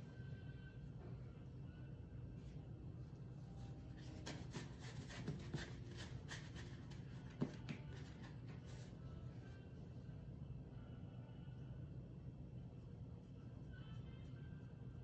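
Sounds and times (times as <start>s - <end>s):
low steady hum: 0.0s - 15.0s
brush rubbing on paper plate: 3.9s - 7.2s.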